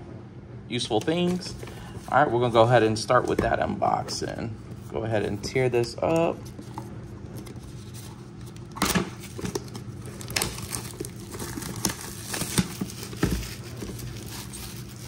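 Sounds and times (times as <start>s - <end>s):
plastic shrink wrap tearing: 6.6s - 15.0s.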